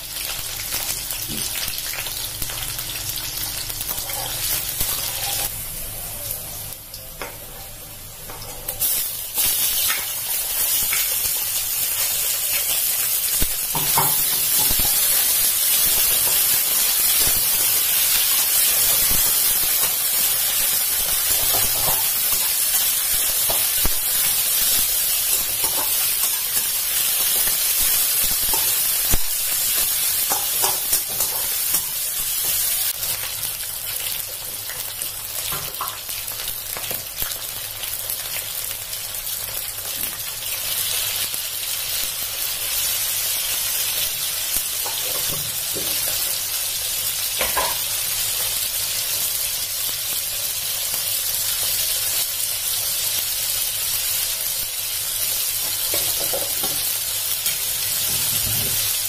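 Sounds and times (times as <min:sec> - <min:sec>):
chicken sizzling in oil: 0:00.0 - 0:07.1, 0:08.3 - 0:59.0.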